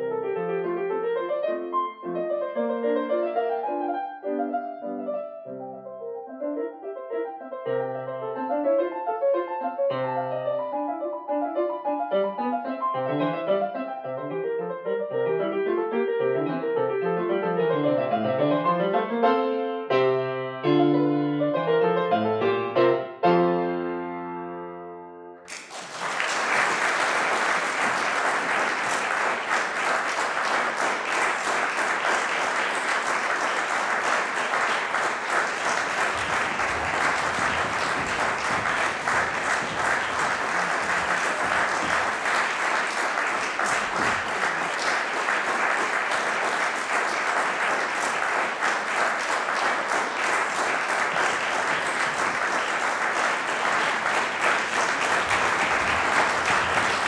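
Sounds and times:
grand piano playing: 0.0 - 25.5, 32.2 - 57.0
audience applause: 25.5 - 57.0.

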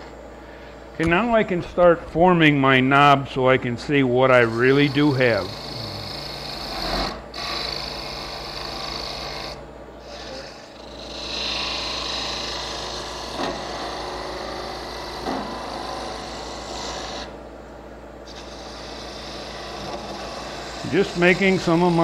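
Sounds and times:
wood lathe humming: 4.1 - 17.4, 18.3 - 22.0
gouge scraping wood: 18.3 - 22.0.

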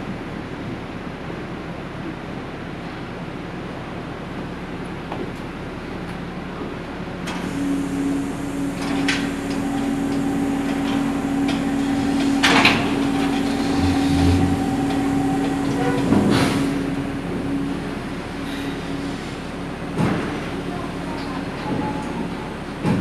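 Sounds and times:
steady machine hum: 7.2 - 23.0.

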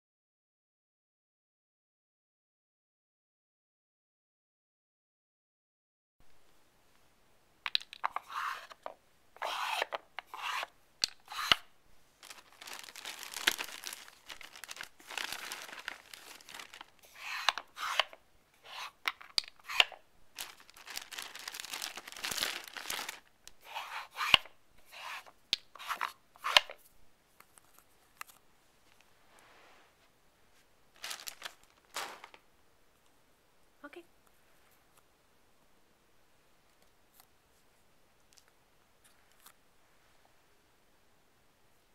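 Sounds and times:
plastic blocks scraping: 12.2 - 26.8.

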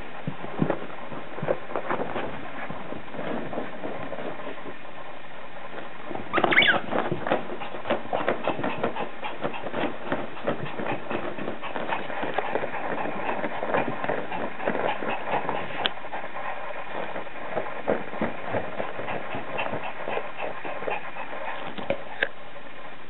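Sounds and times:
dog squealing: 6.3 - 7.0.

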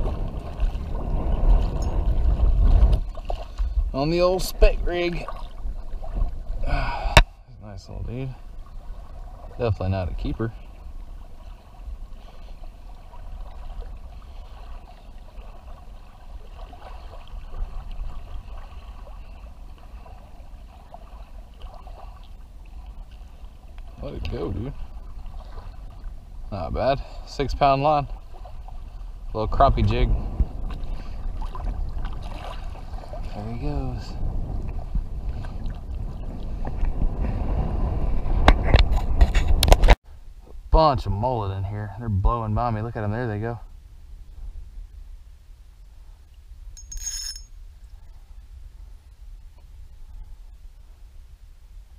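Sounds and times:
water lapping against kayak: 0.0 - 40.0
low rumbling wind noise: 0.0 - 51.9.

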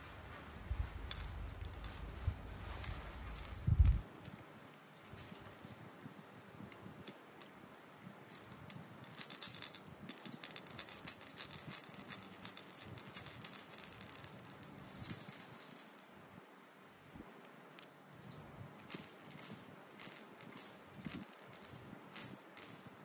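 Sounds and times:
dry high rattling: 0.6 - 4.4, 8.3 - 16.0, 18.8 - 22.9.

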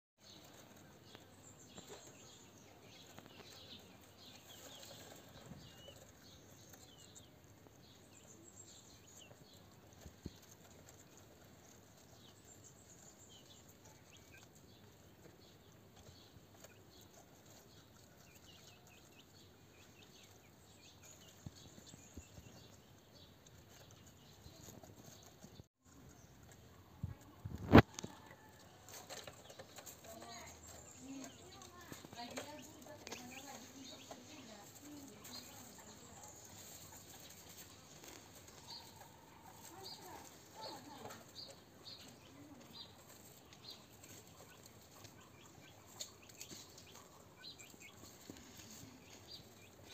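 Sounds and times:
guinea pigs nibbling: 0.2 - 49.9
rustling in grass bedding: 41.8 - 49.9.

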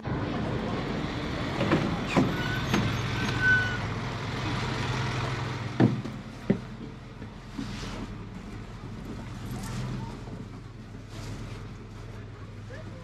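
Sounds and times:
bus engine idling: 0.0 - 13.0
knocks and clunks of footsteps: 5.7 - 9.4.

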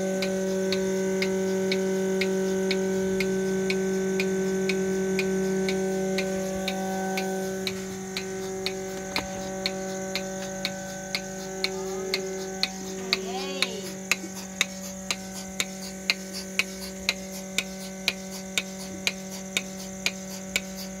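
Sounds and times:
milking machine pulsator clicks: 0.0 - 21.0
vacuum pump hum: 0.0 - 21.0.

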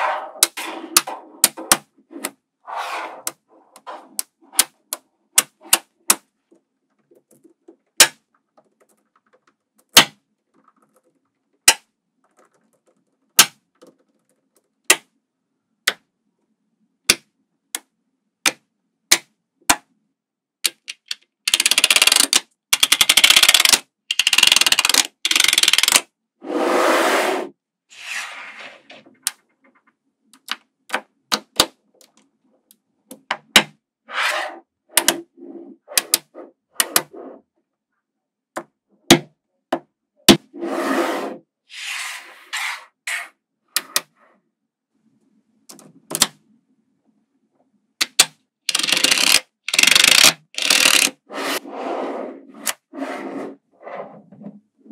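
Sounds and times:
card scraping across magnetic balls: 0.0 - 6.2, 34.1 - 37.4, 40.5 - 44.2, 48.7 - 54.3
magnetic balls clicking together: 20.6 - 26.0, 48.0 - 51.1.

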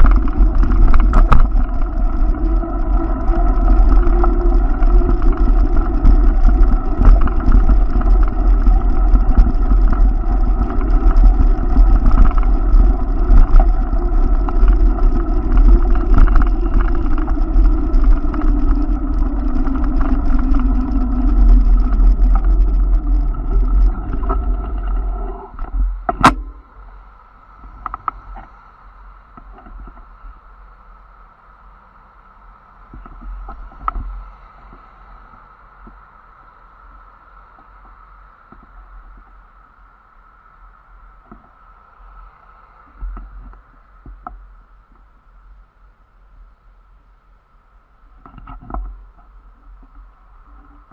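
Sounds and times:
bike rolling on pavement: 0.0 - 28.2
wind rumble on microphone: 0.0 - 50.9.

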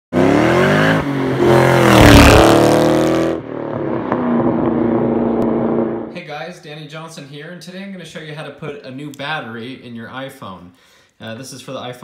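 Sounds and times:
sports car passing fast: 0.2 - 6.1
steady engine note: 0.2 - 6.2.

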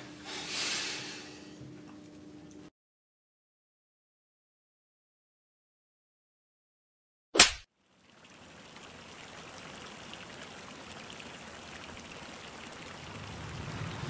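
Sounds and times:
outdoor rushing hiss: 0.0 - 1.5.

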